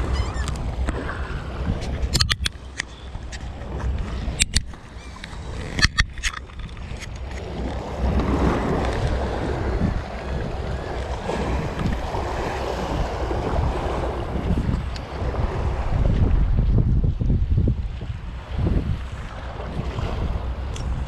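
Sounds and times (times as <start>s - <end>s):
waves lapping against boulders: 0.0s - 21.0s
wind buffeting microphone: 0.0s - 21.0s
sharp clicks: 2.1s - 3.4s.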